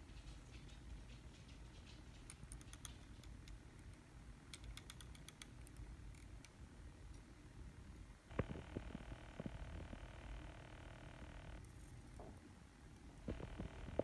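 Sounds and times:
low room rumble: 0:00.0 - 0:14.0.

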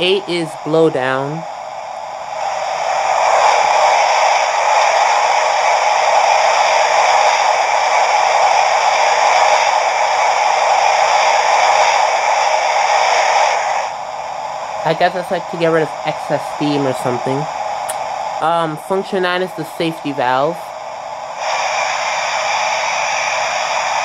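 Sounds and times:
steam hissing from small speaker: 0:00.0 - 0:24.0.

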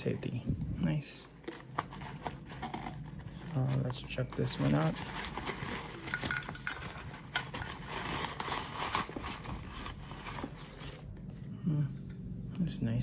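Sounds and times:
plastic packaging rustling: 0:00.0 - 0:11.3
fabric pouch rustling: 0:01.3 - 0:11.2.

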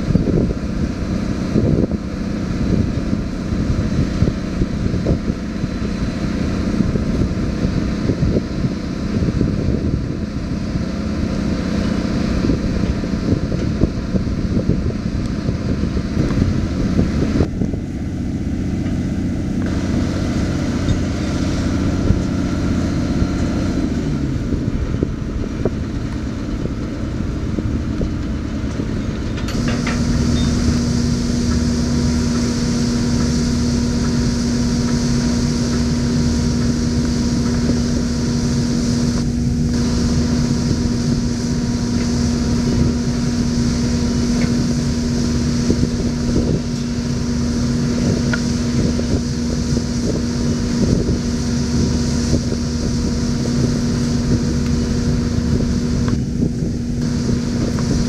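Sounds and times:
pile hammer machine drone: 0:18.6 - 0:58.0.

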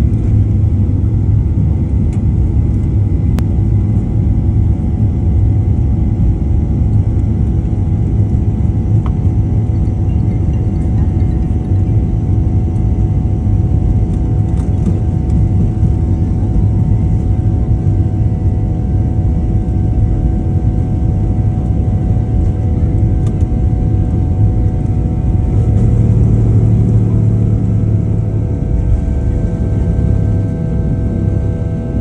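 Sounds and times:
jet engines at high thrust: 0:00.0 - 0:32.0
wheels rumbling on runway: 0:06.2 - 0:18.5, 0:21.4 - 0:32.0
whining tones: 0:24.8 - 0:32.0.

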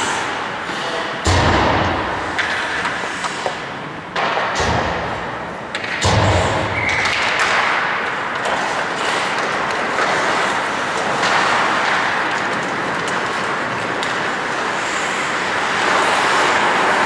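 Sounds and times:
skate blades scraping ice: 0:00.0 - 0:01.2, 0:01.9 - 0:04.4, 0:06.7 - 0:17.0
sticks and puck clicking: 0:02.3 - 0:04.6, 0:05.7 - 0:06.1, 0:06.7 - 0:17.0.

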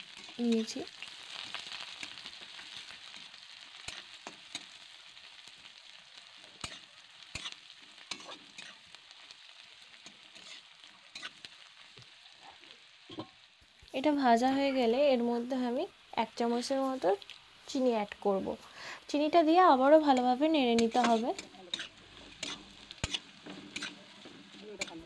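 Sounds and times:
onions sizzling in hot oil: 0:00.0 - 0:25.0
metal spatula scraping pan: 0:06.6 - 0:08.8, 0:10.1 - 0:11.4, 0:20.1 - 0:25.0.

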